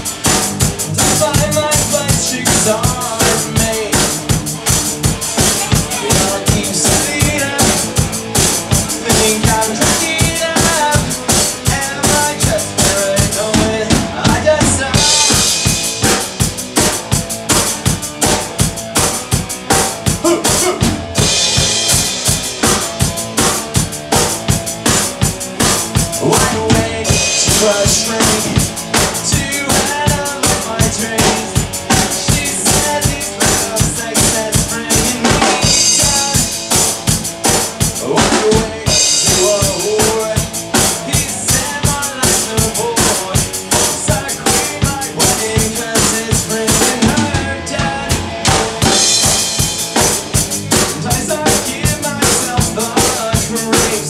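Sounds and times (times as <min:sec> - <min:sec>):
bass drum and snare beat: 0:00.0 - 0:54.0
electric guitar: 0:00.0 - 0:54.0
man singing into a microphone: 0:00.8 - 0:04.4, 0:05.5 - 0:08.2, 0:08.8 - 0:15.6, 0:20.2 - 0:20.9, 0:26.1 - 0:36.8, 0:37.8 - 0:48.4, 0:50.8 - 0:54.0.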